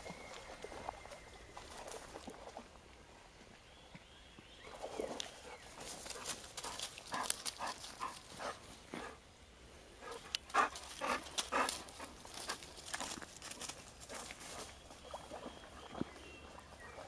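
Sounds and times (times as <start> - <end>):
dog panting: 6.2 - 9.2, 10.0 - 12.8.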